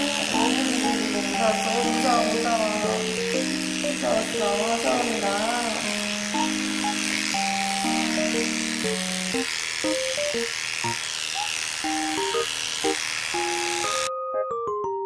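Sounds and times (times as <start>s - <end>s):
light cheerful background tune: 0.0s - 5.3s, 13.4s - 15.0s
electric clipper buzzing: 0.0s - 14.1s.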